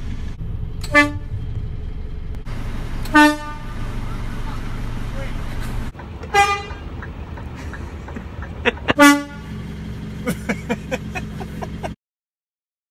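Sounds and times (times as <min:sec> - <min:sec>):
air horn blasts: 0:00.8 - 0:01.3, 0:03.0 - 0:03.8, 0:06.3 - 0:06.8, 0:08.9 - 0:09.5.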